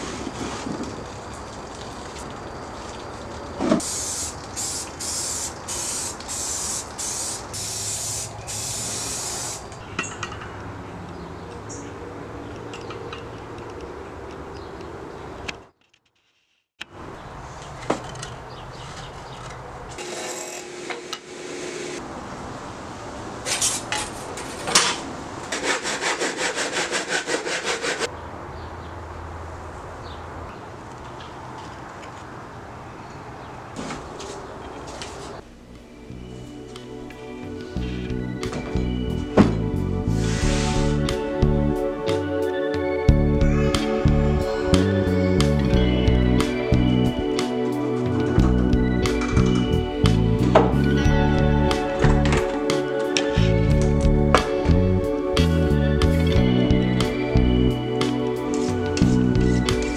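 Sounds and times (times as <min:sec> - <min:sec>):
aerosol spray hissing bursts: 0:03.8 - 0:09.8
hand saw cutting wood: 0:20.0 - 0:22.0, 0:24.8 - 0:28.1.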